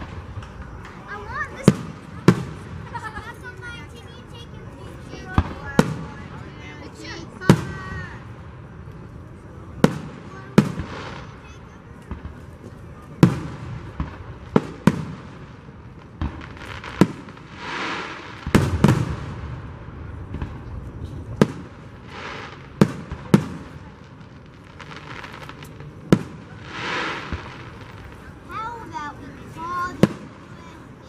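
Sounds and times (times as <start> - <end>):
fireworks bangs: 0.0 - 31.0
fireworks hiss: 9.8 - 12.6, 13.3 - 19.7, 20.4 - 31.0.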